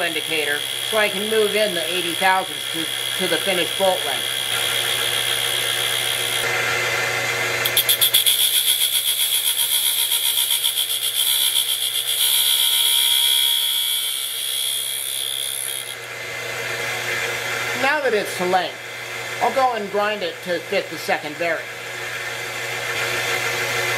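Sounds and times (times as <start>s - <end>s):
abrasive wheel grinding steel screw: 0.0s - 6.5s, 7.6s - 16.0s
grinder motor whining: 0.0s - 23.9s.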